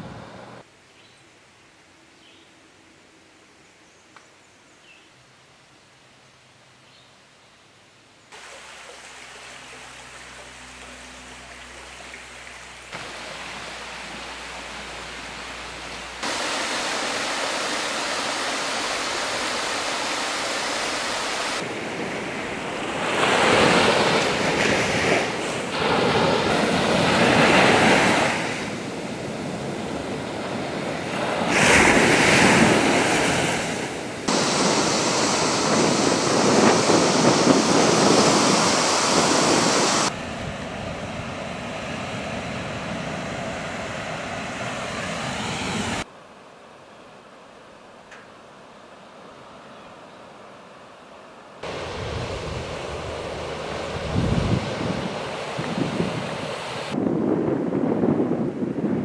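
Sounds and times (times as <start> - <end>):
ocean surf breaking: 12.9 - 46.1, 51.6 - 57.8.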